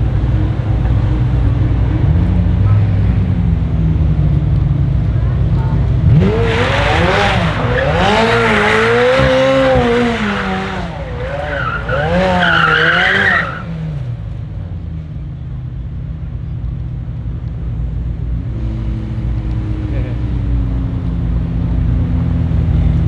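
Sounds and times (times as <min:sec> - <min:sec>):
low engine rumble: 0:00.0 - 0:23.0
car engine revving: 0:05.8 - 0:14.3
tyres squealing: 0:06.9 - 0:13.7.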